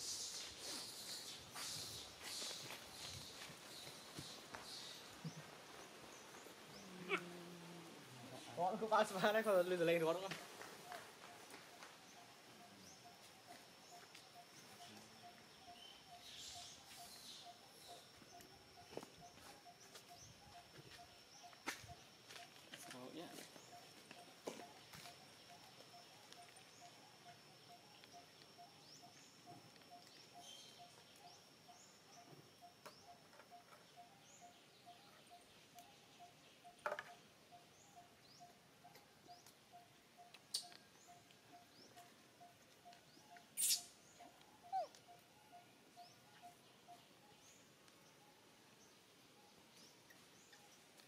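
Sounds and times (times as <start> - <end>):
small chirps: 10.8 - 48.0.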